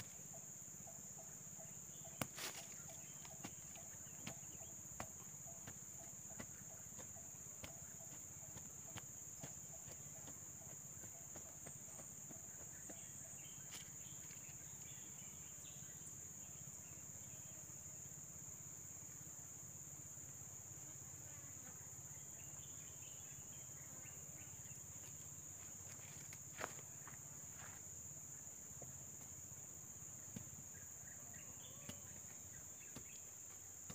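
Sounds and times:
hand tool jabbing into soil: 2.2 - 10.4.

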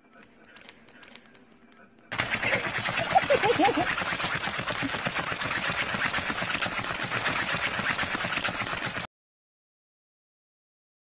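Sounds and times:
fast keyboard typing: 2.1 - 9.1.

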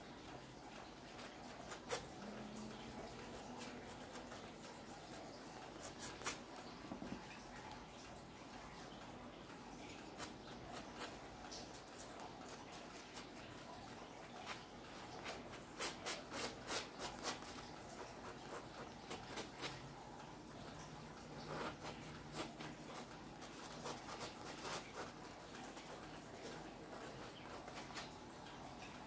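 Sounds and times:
brush dabbing ticks: 0.0 - 29.0
paintbrush rubbing on canvas: 14.2 - 19.8.

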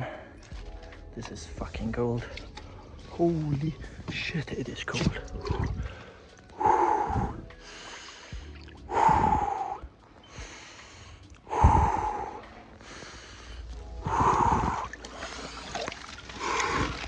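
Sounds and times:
man breathing hard: 5.7 - 17.0.

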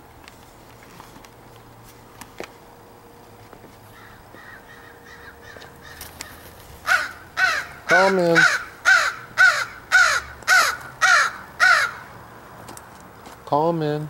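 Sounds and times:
faint crow cawing: 3.9 - 12.2.

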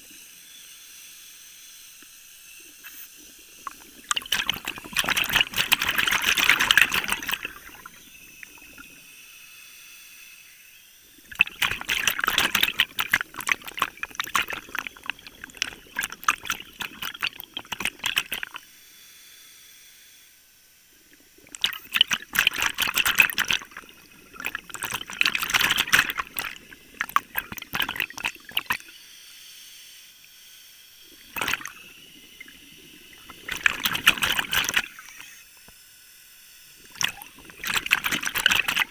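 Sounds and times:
underwater air bubbling: 2.6 - 9.2, 11.0 - 18.6, 21.0 - 29.0, 31.1 - 35.4, 36.8 - 38.9.

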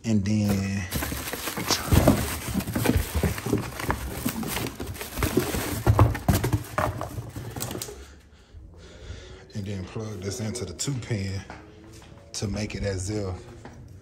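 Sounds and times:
cardboard boxes rustling and knocking: 0.5 - 8.0.

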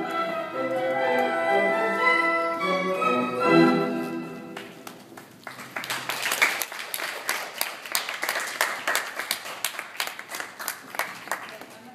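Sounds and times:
small group clapping: 4.6 - 11.9.

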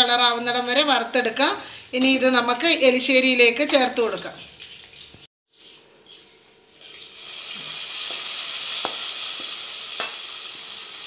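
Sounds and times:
hot oil sizzling: 6.7 - 11.0.

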